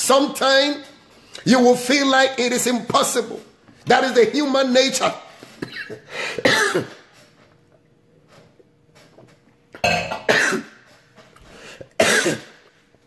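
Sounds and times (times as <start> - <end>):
man speaking: 0.0 - 5.4
man coughing: 5.5 - 7.1, 10.2 - 10.8, 11.9 - 12.6.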